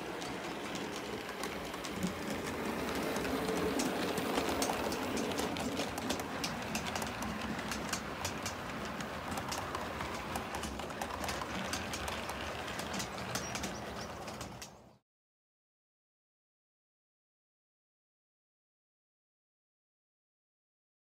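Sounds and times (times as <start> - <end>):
model train rumbling: 0.0 - 15.0
wheels clicking over rail joints: 0.0 - 15.0.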